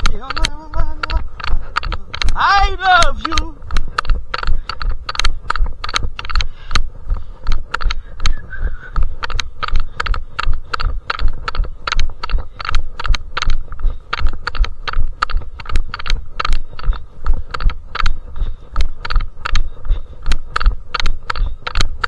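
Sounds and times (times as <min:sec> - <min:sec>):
running footsteps on a path: 0:00.0 - 0:22.0.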